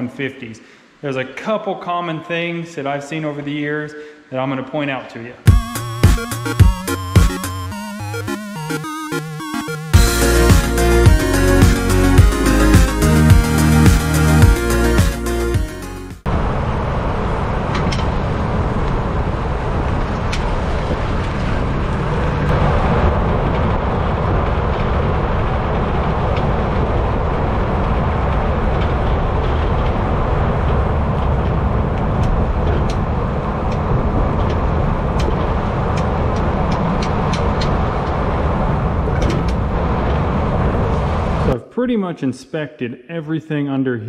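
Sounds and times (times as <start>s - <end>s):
tyre and road noise: 16.2s - 41.6s.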